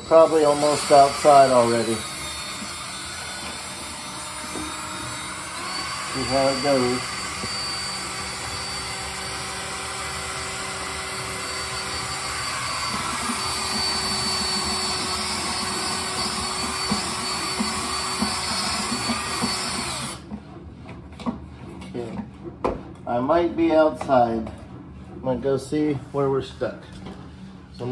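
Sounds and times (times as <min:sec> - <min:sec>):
cordless drill running: 0:00.0 - 0:20.2.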